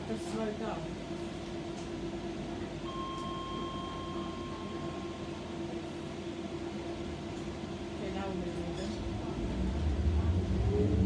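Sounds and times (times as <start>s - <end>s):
electrical and ventilation hum: 0.0s - 11.0s
high beep tone: 2.9s - 4.9s.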